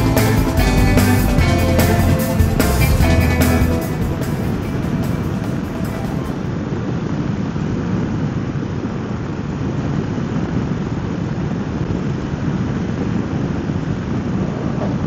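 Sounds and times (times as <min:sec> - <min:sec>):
motorcycle engine and road noise: 0:00.0 - 0:15.0.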